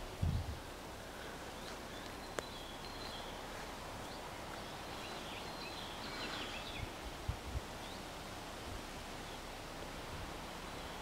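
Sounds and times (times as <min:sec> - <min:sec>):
wind thumps on microphone: 0:00.0 - 0:00.6
faint bird chirps: 0:01.2 - 0:07.0.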